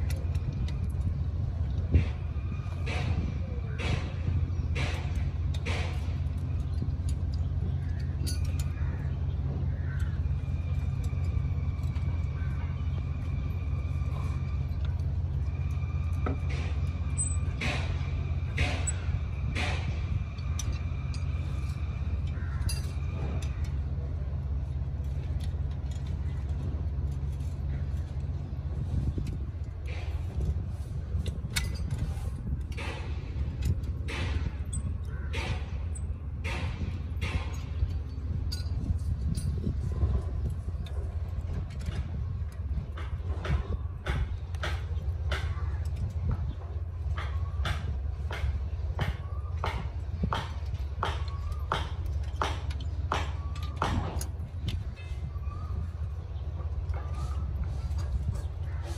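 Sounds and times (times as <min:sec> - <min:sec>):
small metallic clicks: 0:00.0 - 0:03.2, 0:03.8 - 0:58.7
machinery drone: 0:00.0 - 0:58.9
steady low rumble: 0:00.0 - 0:58.9
pliers clinking on steel bars: 0:03.8 - 0:09.2, 0:14.3 - 0:28.4, 0:31.2 - 0:56.0.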